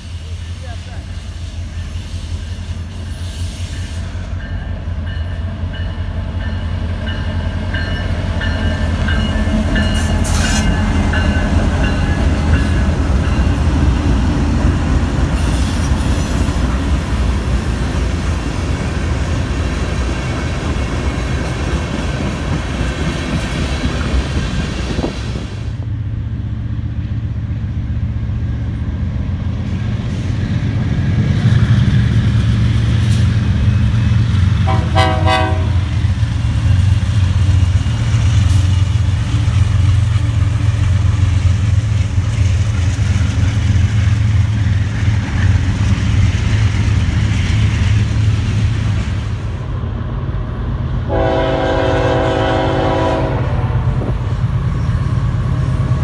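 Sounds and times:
diesel locomotives rumbling past: 0:00.0 - 0:56.0
train horn blast: 0:34.6 - 0:36.0, 0:51.0 - 0:54.1.

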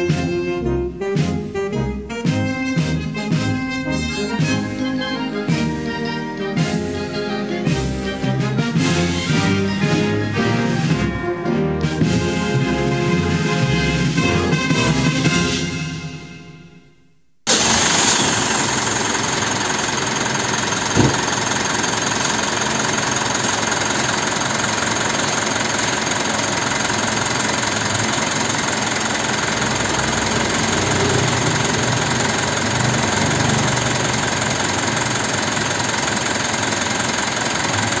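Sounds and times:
diesel engine idling: 0:17.5 - 0:38.0
sharp engine knock: 0:19.8 - 0:37.0.

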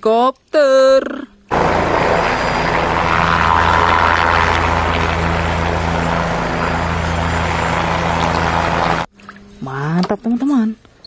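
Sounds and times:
helicopter rotor and turbine: 0:01.5 - 0:09.1
low even hum: 0:01.5 - 0:09.1.

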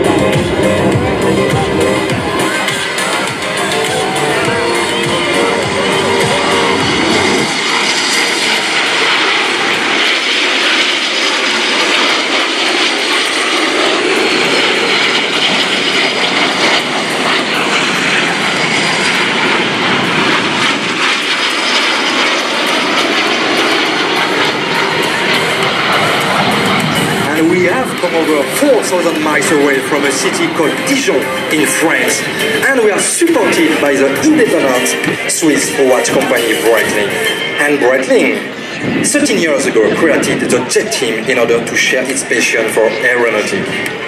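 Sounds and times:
background music: 0:00.0 - 0:09.4, 0:23.5 - 0:38.7
jet engines roaring: 0:00.0 - 0:44.0.

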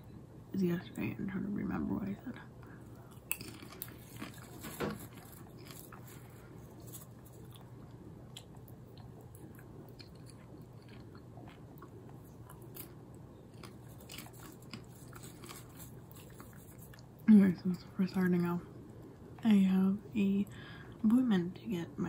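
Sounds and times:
popcorn chewing: 0:02.7 - 0:17.2.

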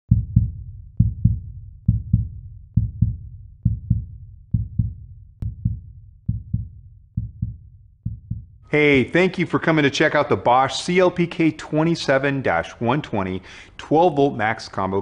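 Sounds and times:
heartbeat thumps: 0:00.1 - 0:08.7.

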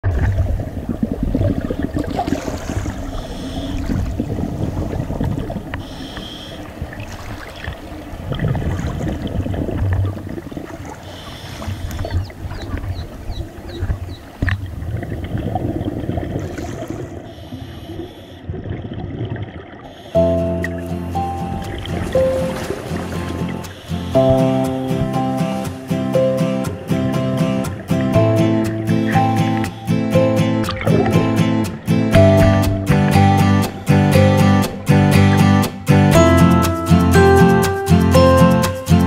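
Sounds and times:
underwater bubbling of exhaled air: 0:00.0 - 0:20.8
music: 0:20.2 - 0:39.0.

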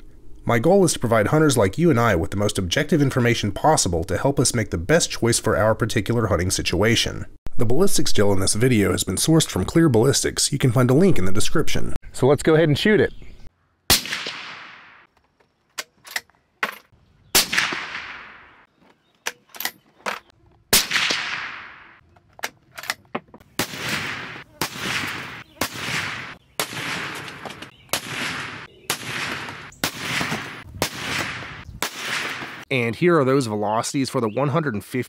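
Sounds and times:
suppressed rifle shots echoing: 0:13.9 - 0:15.1, 0:17.3 - 0:18.7, 0:20.7 - 0:22.0, 0:23.6 - 0:32.6.

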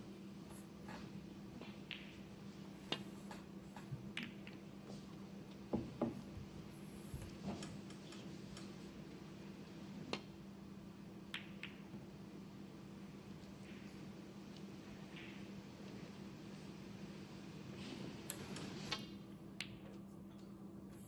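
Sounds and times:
snooker balls clicking: 0:00.9 - 0:06.3, 0:11.2 - 0:12.2, 0:13.3 - 0:16.6, 0:18.4 - 0:20.0.

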